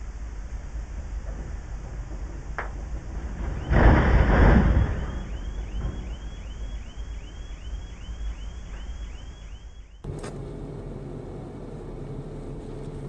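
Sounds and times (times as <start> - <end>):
tree crashing onto cars: 3.1 - 6.3
car alarm whooping: 3.4 - 10.1.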